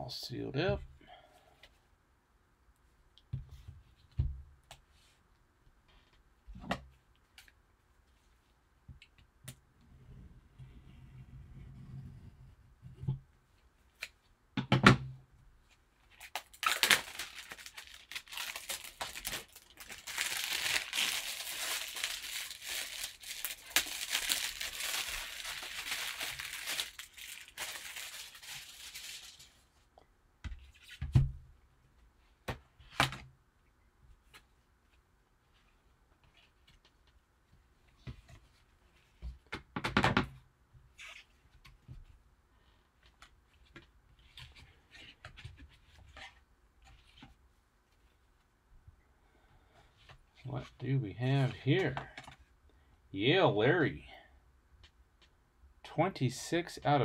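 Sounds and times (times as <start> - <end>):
packaging tearing and crinkling: 16.2 - 29.5.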